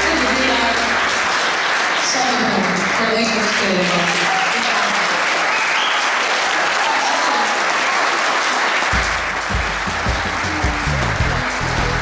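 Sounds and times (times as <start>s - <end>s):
audience applauding: 0.0s - 12.0s
music with heavy bass beat: 9.0s - 12.0s.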